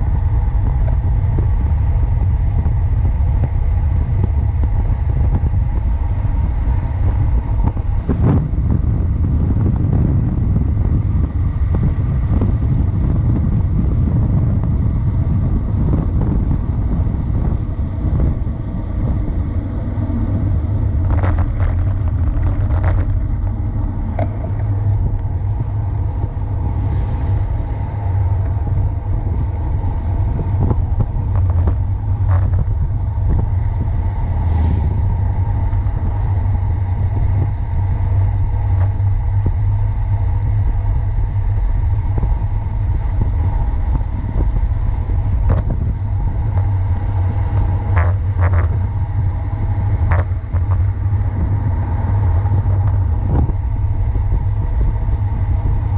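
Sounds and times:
tyre noise on asphalt: 0.0 - 55.9
wind buffeting microphone: 0.0 - 55.9
bicycle clicks and clatters: 20.6 - 26.0, 29.4 - 33.7, 35.6 - 40.8, 44.9 - 54.6.

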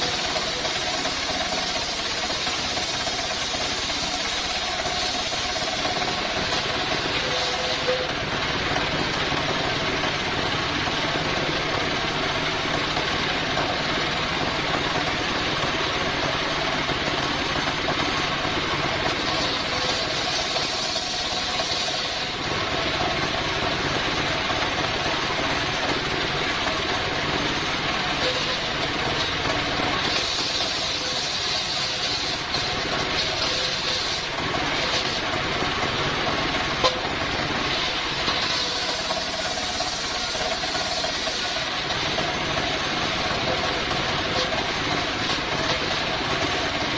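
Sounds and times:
circular saw blade whining: 0.0 - 46.9
stationary engine running: 0.0 - 46.9.

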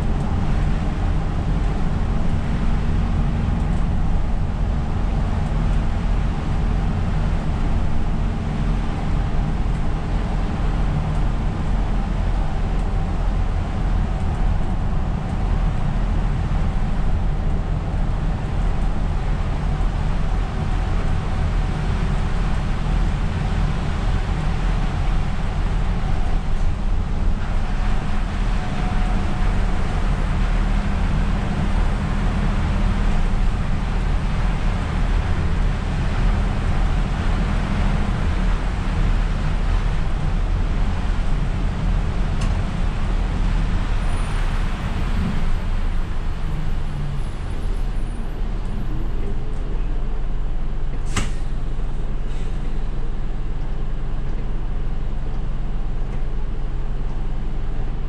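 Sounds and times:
bus diesel engine drone: 0.0 - 58.0
tyre hiss on wet road: 51.0 - 51.7.

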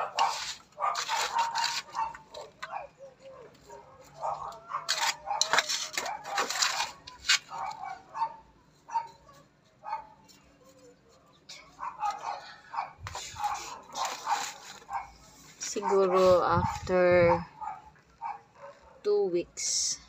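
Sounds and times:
metal trowel scraping soil: 0.0 - 2.6, 4.6 - 7.9, 13.1 - 17.2
trowel clinking on foil tray: 4.8 - 7.7.

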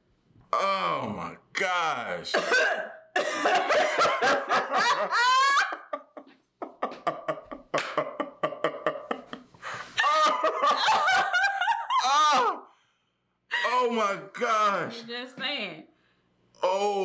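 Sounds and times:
woman and man laughing: 3.2 - 12.6.

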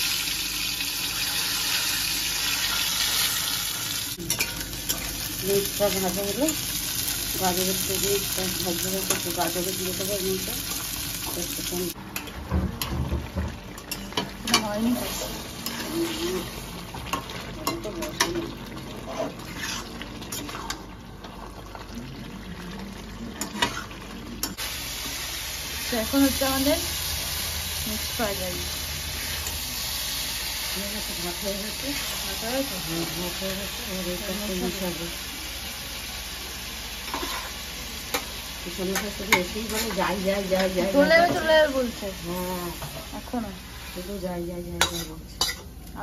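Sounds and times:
meat sizzling in oil: 0.0 - 12.0, 12.9 - 22.4, 23.2 - 46.0
metal spatula scraping a pan: 13.9 - 18.4, 19.0 - 20.8, 23.4 - 24.6, 37.1 - 38.2, 38.9 - 41.4, 44.8 - 45.7.

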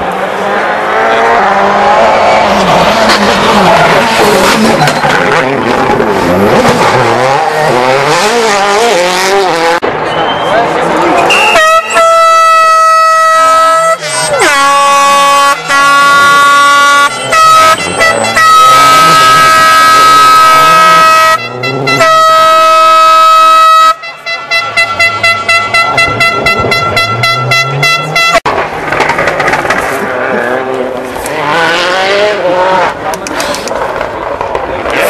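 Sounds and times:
rally car engine revving: 0.0 - 11.5, 13.4 - 23.0, 24.7 - 35.0
distant rally car engine: 0.0 - 12.5, 13.1 - 35.0
air horns blasting: 11.3 - 28.5.

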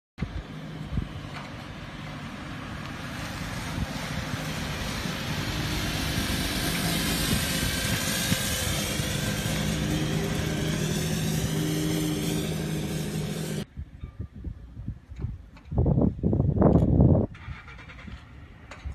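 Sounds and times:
truck engine hum: 0.2 - 13.7
sprayer hiss: 5.7 - 13.6.

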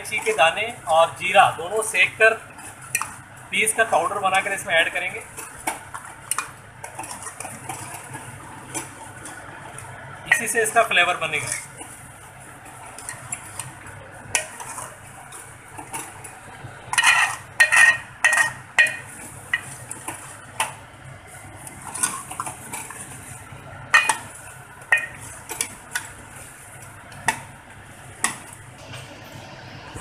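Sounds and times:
metal spoon scraping a pot: 6.3 - 8.9, 14.3 - 16.3, 16.9 - 20.3, 21.8 - 26.2.

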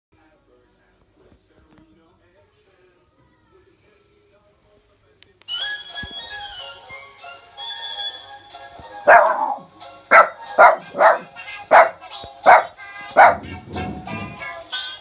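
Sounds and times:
electronic toy song: 5.5 - 9.2
small dog barking: 9.1 - 13.5.

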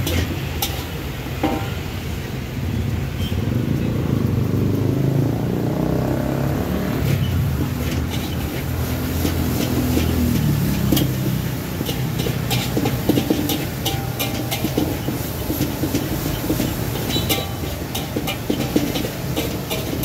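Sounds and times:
metal spatula scraping a wok: 0.0 - 2.1, 6.8 - 20.0
traffic engines rumbling past: 0.0 - 20.0.

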